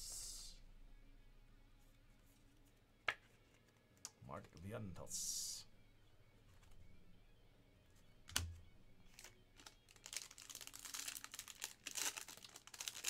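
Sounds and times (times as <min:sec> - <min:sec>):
foil wrapper crinkling and tearing: 0:09.1 - 0:13.0.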